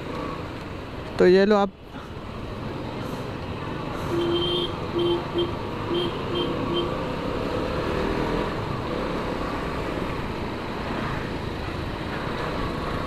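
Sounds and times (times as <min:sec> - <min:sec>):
traffic noise: 0:00.0 - 0:13.0
vehicle horn beeps: 0:04.1 - 0:06.9.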